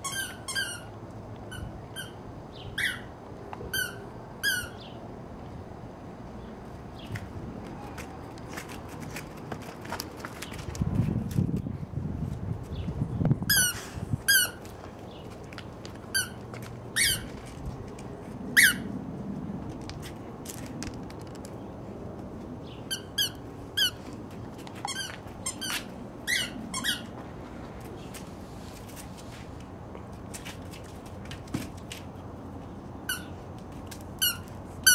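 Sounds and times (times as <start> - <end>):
squeaky dog toy squeaking: 0.0 - 0.9, 1.5 - 2.2, 2.8 - 3.1, 3.7 - 4.8, 13.5 - 14.6, 16.1 - 16.4, 17.0 - 17.3, 18.6 - 18.9, 22.9 - 24.0, 24.8 - 27.1, 33.1 - 33.3, 34.2 - 34.9.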